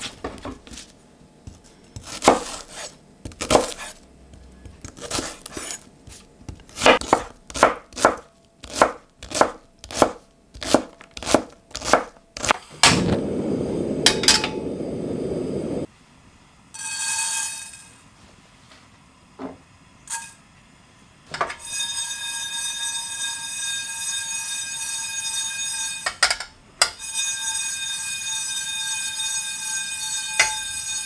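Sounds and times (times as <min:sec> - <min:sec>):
knife chopping on wooden board: 0:01.5 - 0:12.6
low rushing noise: 0:12.7 - 0:15.9.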